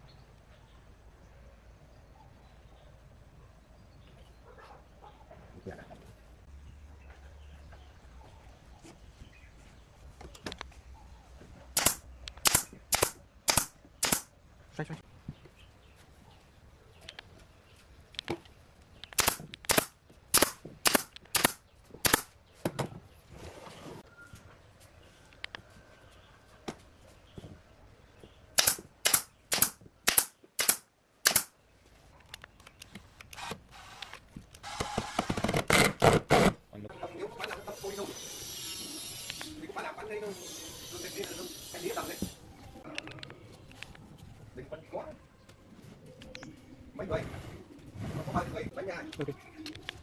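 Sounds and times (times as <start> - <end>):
nail gun shots: 11.7 - 14.3, 19.1 - 22.4, 28.6 - 31.6.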